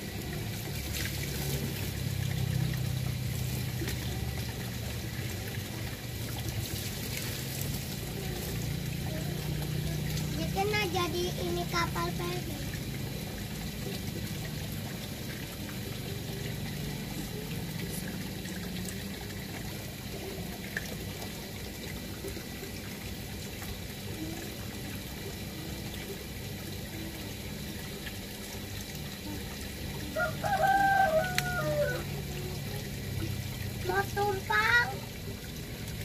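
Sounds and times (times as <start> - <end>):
low background hum: 0.0 - 36.0
rooster crowing: 30.2 - 32.1.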